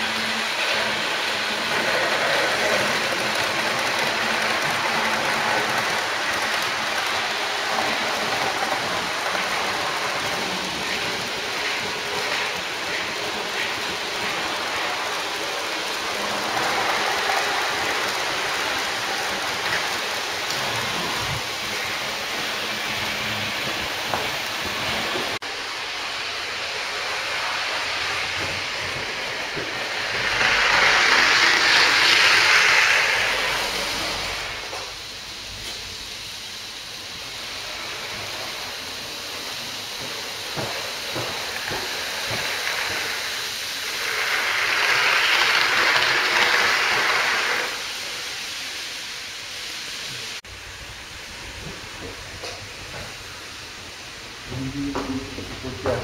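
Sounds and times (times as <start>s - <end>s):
model train wheels rattling: 0.0s - 25.4s.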